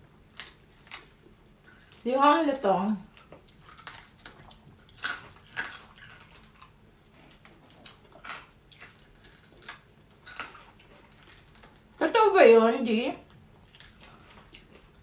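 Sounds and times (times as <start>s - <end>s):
chewing and lip smacks: 3.0s - 11.9s, 13.3s - 15.0s.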